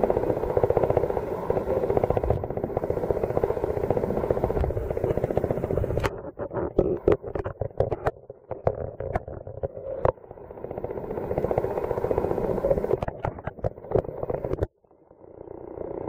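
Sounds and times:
muffled underwater rushing: 0:00.0 - 0:14.7
sharp underwater clicks and knocks: 0:04.5 - 0:10.2, 0:12.8 - 0:14.7.

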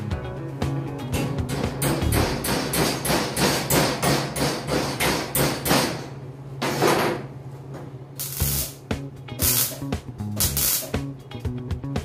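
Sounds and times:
hand tool striking steel frame: 0:01.2 - 0:06.0.

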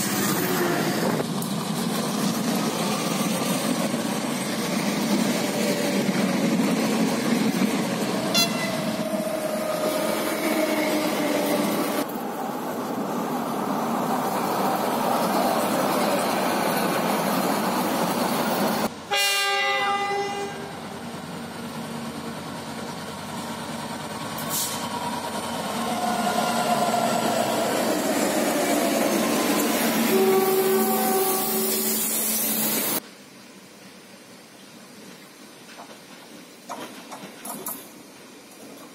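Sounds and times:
diesel locomotive approaching: 0:00.0 - 0:33.0
tram running on track: 0:00.0 - 0:33.0, 0:34.6 - 0:38.9
train horn blasts: 0:08.3 - 0:09.1, 0:19.1 - 0:20.7, 0:30.1 - 0:31.9.

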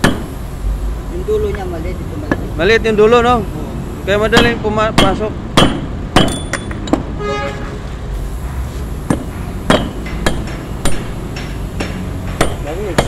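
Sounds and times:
hammer striking metal punch: 0:00.0 - 0:00.4, 0:04.3 - 0:07.2, 0:09.0 - 0:13.0.

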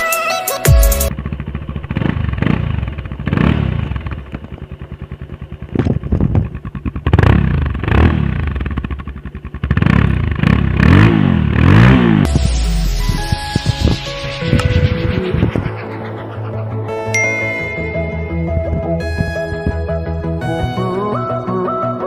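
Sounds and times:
motorcycle engine idling: 0:01.1 - 0:11.7
motorcycle throttle blips: 0:01.1 - 0:11.7.

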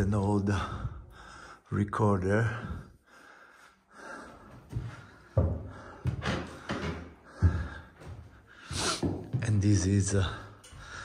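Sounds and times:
footsteps on wooden floor: 0:04.0 - 0:11.0.

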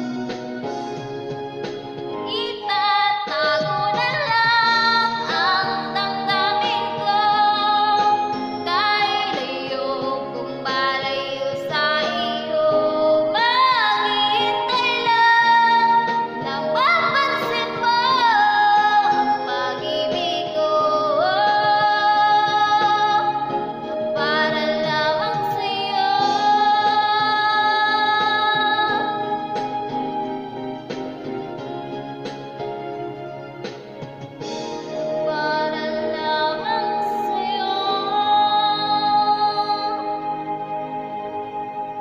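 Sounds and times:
music backing track: 0:00.0 - 0:42.0
woman singing: 0:02.2 - 0:29.4, 0:35.1 - 0:40.3.

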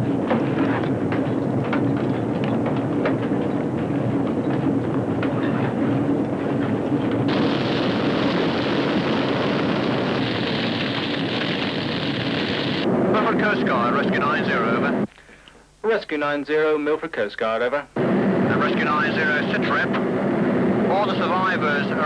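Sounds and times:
scattered knocks: 0:00.0 - 0:07.3
helicopter rotor and engine rumble: 0:00.0 - 0:15.1, 0:18.0 - 0:22.0
loud steady hiss: 0:07.3 - 0:22.0.

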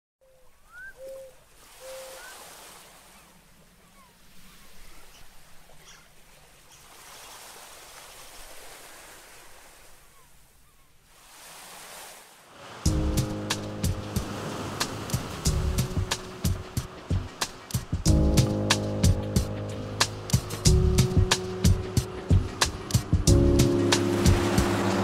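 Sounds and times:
sea surf washing: 0:11.1 - 0:25.0.

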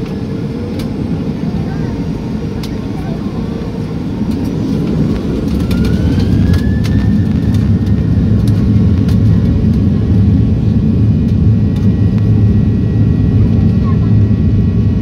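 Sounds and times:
jet engines rumbling in cabin: 0:00.0 - 0:15.0
faint rising whine: 0:03.0 - 0:13.4.

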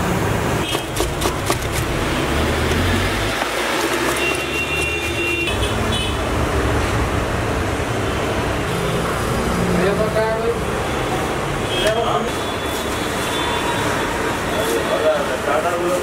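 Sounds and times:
street traffic noise: 0:00.0 - 0:16.0
knife cutting cabbage: 0:00.6 - 0:05.5.

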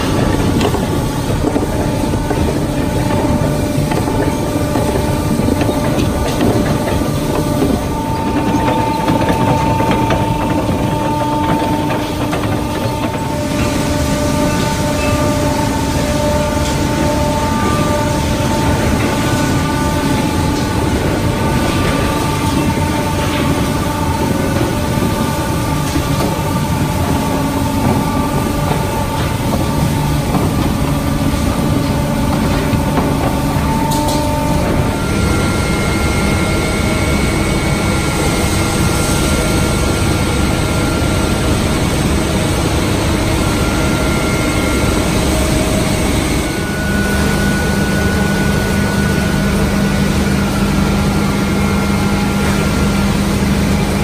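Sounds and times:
chain conveyor rumbling: 0:00.0 - 0:54.0
steady machine whine: 0:00.0 - 0:54.0.

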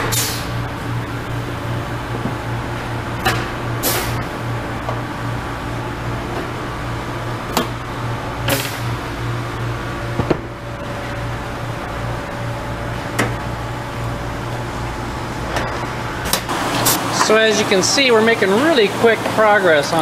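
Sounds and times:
air hissing: 0:00.0 - 0:00.7, 0:03.8 - 0:04.3
shop machinery hum: 0:00.0 - 0:20.0.

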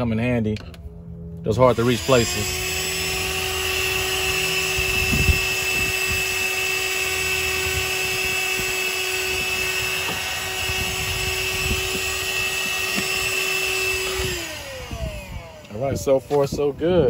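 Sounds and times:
handheld vacuum cleaner whine: 0:01.3 - 0:17.0
nozzle knocking seat trim: 0:11.8 - 0:13.4.

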